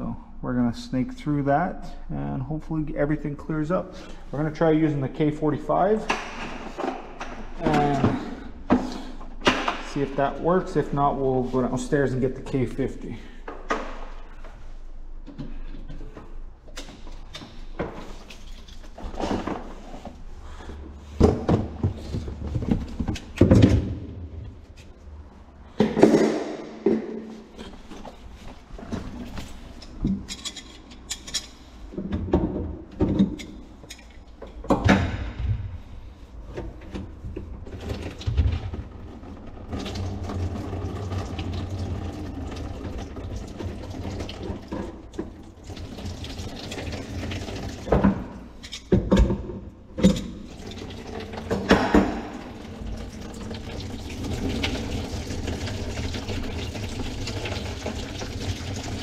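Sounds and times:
knocks and clunks at sink: 51.5s - 52.4s.

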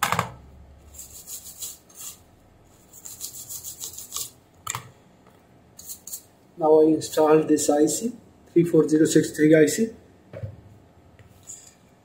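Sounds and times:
brush scrubbing circuit board: 0.9s - 4.4s.

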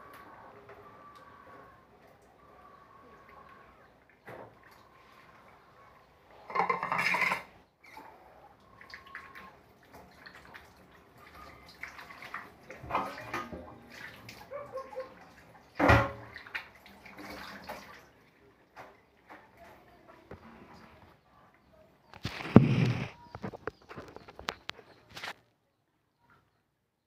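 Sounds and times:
water splashing in metal sink: 6.5s - 8.0s, 8.7s - 18.3s.

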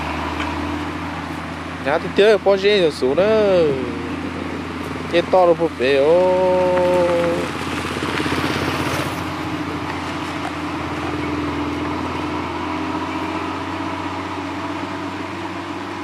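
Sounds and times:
small motorcycle passing: 0.0s - 16.0s
truck engine hum: 0.0s - 16.0s.

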